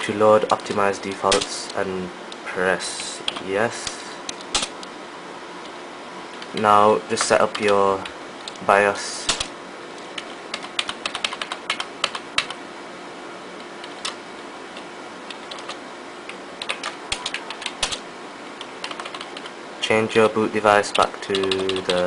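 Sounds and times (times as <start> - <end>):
keyboard keys clicking: 0.5 - 1.8, 6.4 - 8.6, 10.1 - 12.6, 14.8 - 18.0, 18.6 - 19.5, 20.9 - 22.0.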